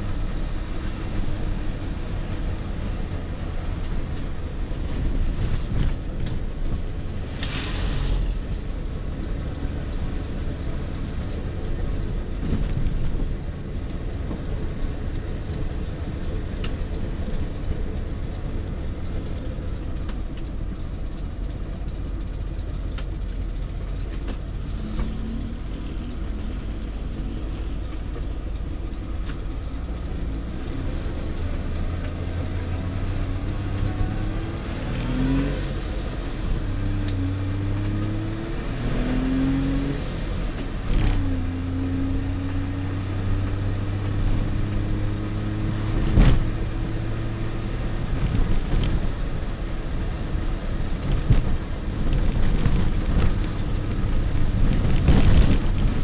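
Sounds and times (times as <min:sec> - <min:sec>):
road noise: 0:00.0 - 0:56.0
brief hiss: 0:07.3 - 0:08.4
two-stroke car engine running: 0:08.6 - 0:35.0.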